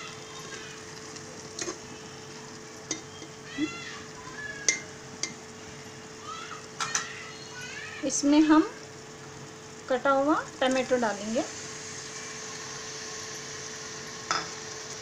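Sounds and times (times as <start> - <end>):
faint steady sizzle: 0.0 - 15.0.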